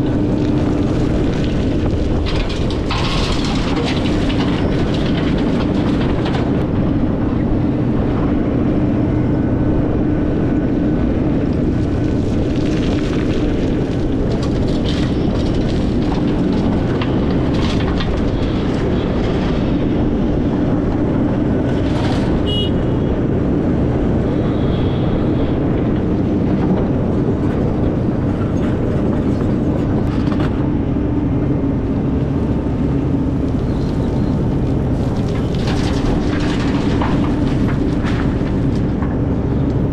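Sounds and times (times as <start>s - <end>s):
excavator diesel engine running: 0.0s - 39.9s
knocks and clanks: 1.4s - 6.7s, 35.2s - 39.8s.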